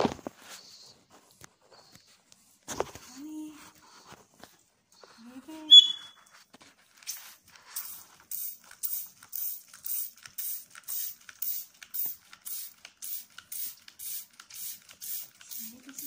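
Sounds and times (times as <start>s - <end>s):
spray bottle hissing: 7.1s - 16.0s.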